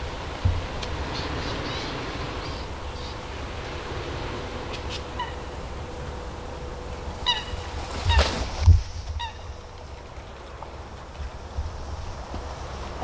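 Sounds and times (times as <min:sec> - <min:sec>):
wind rumbling on microphone: 0:00.0 - 0:13.0
honking bird calls: 0:00.6 - 0:10.6.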